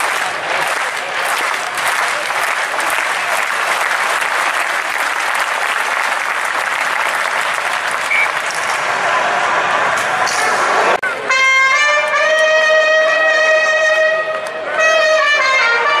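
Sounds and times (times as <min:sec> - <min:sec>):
crowd applauding: 0:00.0 - 0:11.2.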